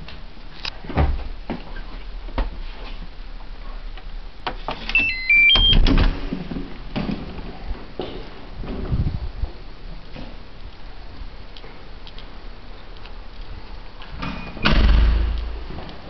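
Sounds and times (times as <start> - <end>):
door lock electronic chime: 4.9 - 5.8, 14.3 - 14.7.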